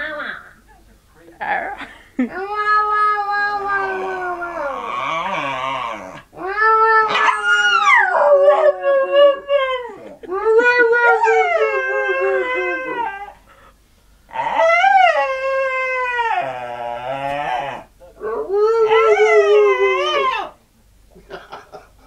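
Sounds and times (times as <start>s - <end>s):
dog howling and whining: 2.4s - 13.4s, 14.3s - 20.6s.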